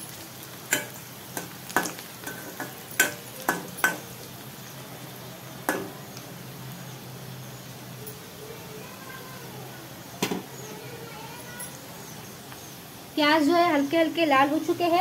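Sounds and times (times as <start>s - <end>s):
onions sizzling in oil: 0.0s - 15.0s
metal spoon clacking against pan: 0.7s - 4.2s, 5.7s - 6.0s.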